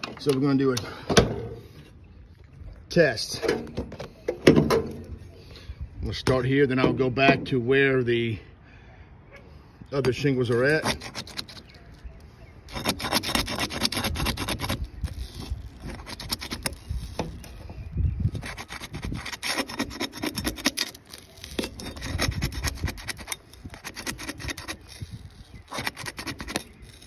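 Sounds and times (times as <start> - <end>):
pry bar scraping shingles: 10.0 - 27.0.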